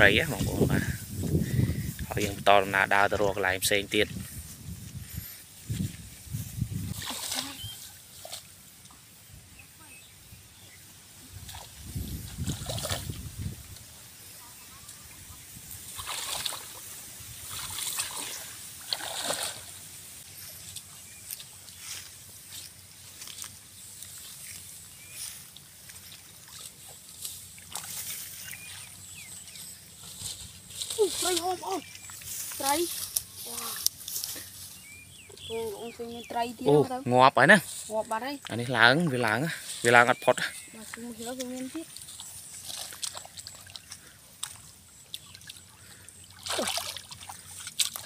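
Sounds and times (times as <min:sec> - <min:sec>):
footsteps on grass: 0:00.0 - 0:08.7, 0:20.1 - 0:36.5
grass rustling: 0:00.0 - 0:48.0.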